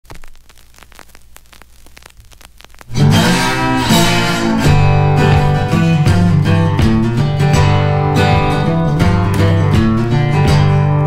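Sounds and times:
guitar-led intro music: 2.9 - 11.0.

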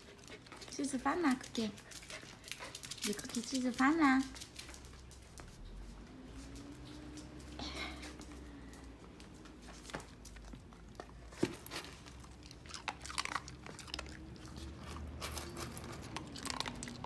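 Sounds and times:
dog crunching dry kibble: 0.1 - 5.8, 9.3 - 17.0.

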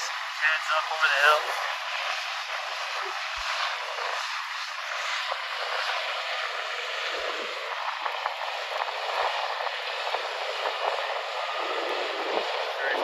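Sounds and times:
distant combine harvester running: 0.0 - 13.0.

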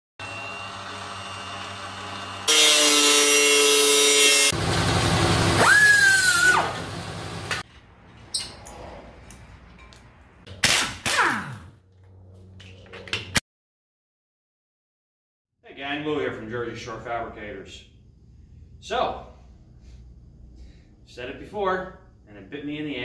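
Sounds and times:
angle grinder cutting steel: 0.2 - 7.6.

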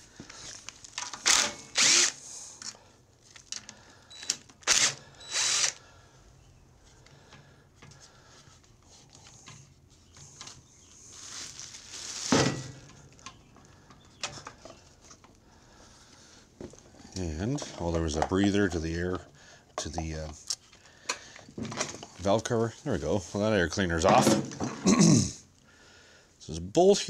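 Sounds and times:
cordless power tool running: 1.2 - 2.2, 4.1 - 5.8.

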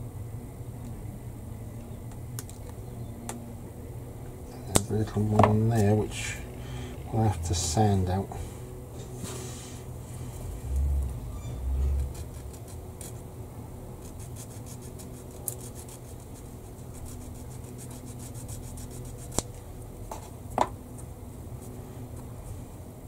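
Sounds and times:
sanding tool rubbing on plastic: 14.0 - 19.4.

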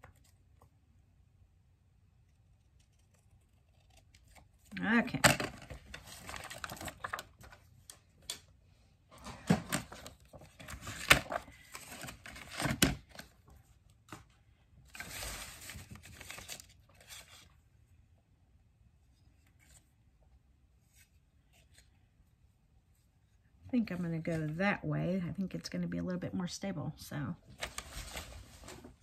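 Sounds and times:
paper rustling and swishing: 27.5 - 29.0.

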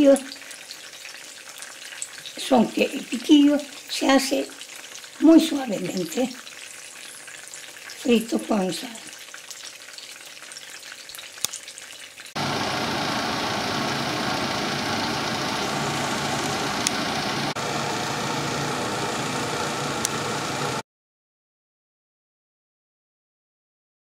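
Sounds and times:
peppers sizzling in oil: 0.0 - 12.8.

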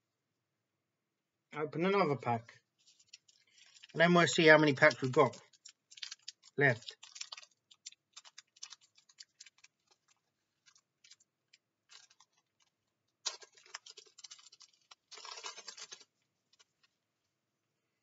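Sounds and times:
card pack wrapper crinkling: 2.8 - 16.9.

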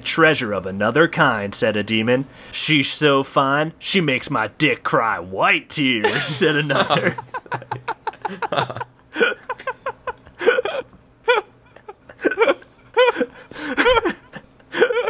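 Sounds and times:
people laughing helplessly: 6.0 - 15.0.

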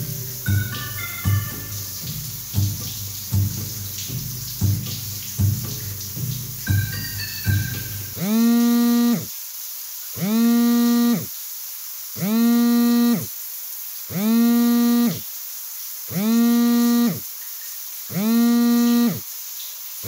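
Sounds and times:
phone vibrating on a table: 6.7 - 9.2, 10.2 - 11.2, 12.2 - 13.2, 14.1 - 15.2, 16.2 - 17.2, 18.1 - 19.2.

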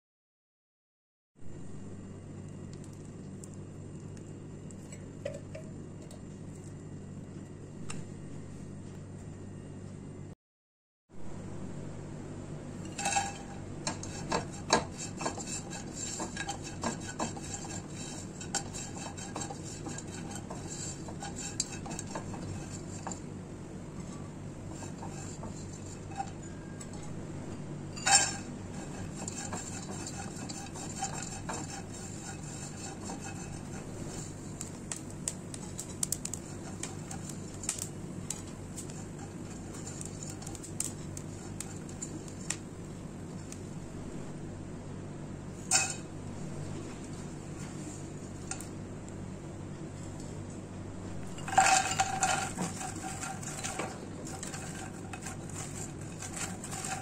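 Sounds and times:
steady low hum: 1.4 - 10.4, 11.1 - 57.0
spatula scraping a pot: 12.8 - 23.4, 24.0 - 27.2, 27.9 - 42.7, 51.1 - 57.0
coconut slices clattering into pot: 51.2 - 57.0.

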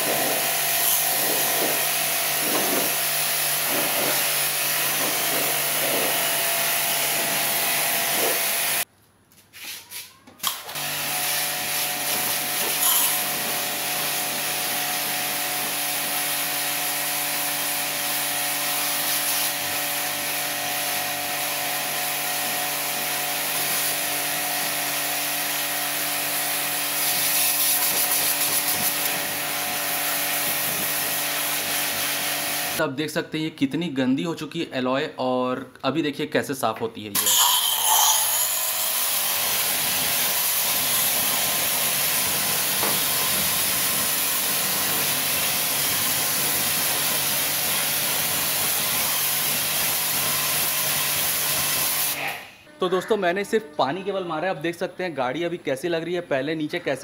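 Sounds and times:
motor and pump humming: 0.0 - 8.8, 10.4 - 32.8
water jet hissing on car: 40.0 - 52.1.

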